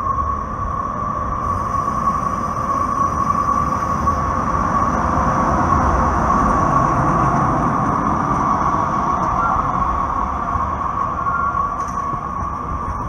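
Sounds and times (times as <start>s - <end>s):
light rail vehicle rumbling past: 0.0s - 13.0s
high-pitched tone: 1.4s - 4.8s.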